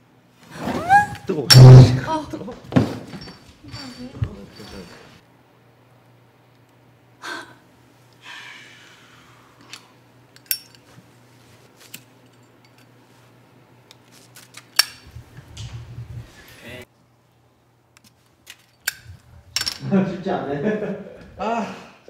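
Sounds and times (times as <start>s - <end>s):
steady low hum: 14.8s - 18.0s.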